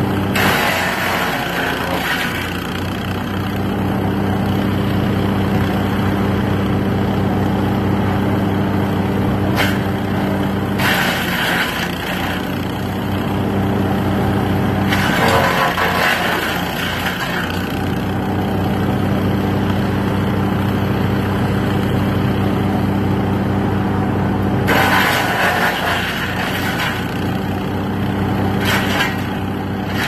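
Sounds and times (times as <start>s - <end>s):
wood chipper engine running: 0.0s - 30.0s.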